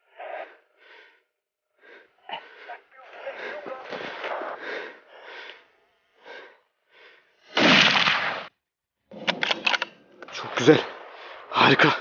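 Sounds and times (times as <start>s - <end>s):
crackles: 2.2s - 8.5s.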